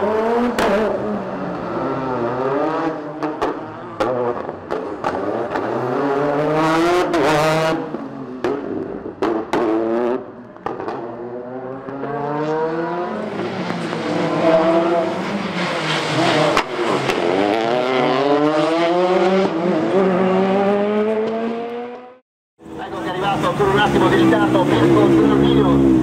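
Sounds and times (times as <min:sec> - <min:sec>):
rally car engine revving: 0:00.0 - 0:26.0.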